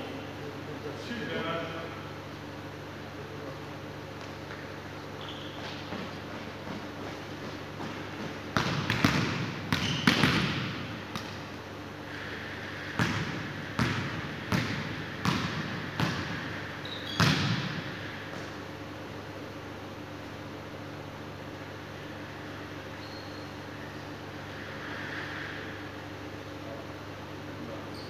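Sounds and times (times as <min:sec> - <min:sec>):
ball hitting floor echoing: 0:05.4 - 0:11.6, 0:12.9 - 0:18.6.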